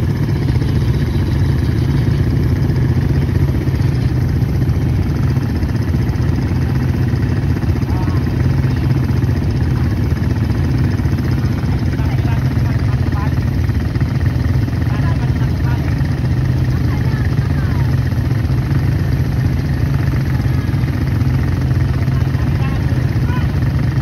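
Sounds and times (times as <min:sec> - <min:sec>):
quad bike engine running: 0:00.0 - 0:24.0.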